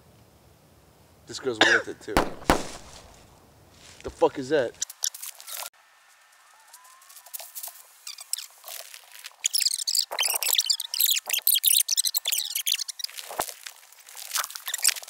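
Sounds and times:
footsteps in dry leaves: 2.4s - 4.3s, 5.1s - 9.5s, 13.1s - 15.0s.

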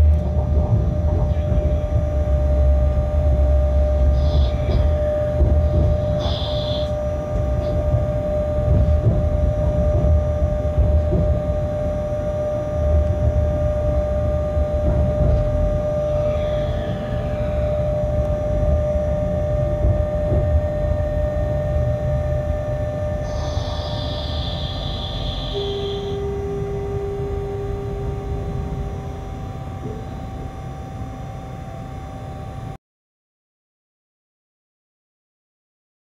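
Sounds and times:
locomotive rumble and whine: 0.0s - 32.8s
high squeals: 3.8s - 7.7s, 15.7s - 18.6s, 23.2s - 27.6s.

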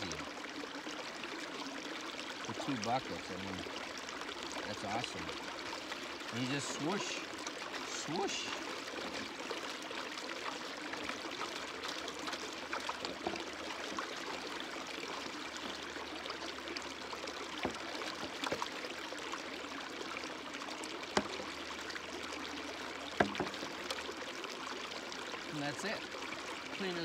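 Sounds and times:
creek running: 0.0s - 27.0s
water splashing into plastic pan: 17.1s - 18.9s, 21.0s - 24.2s.

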